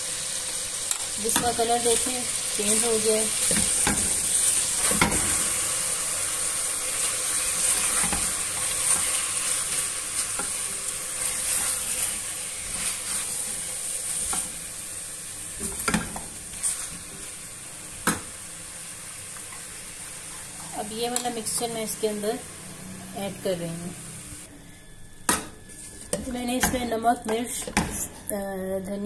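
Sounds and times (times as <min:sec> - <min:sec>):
chicken sizzling in oil: 0:00.0 - 0:23.2
spatula stirring: 0:06.9 - 0:14.6.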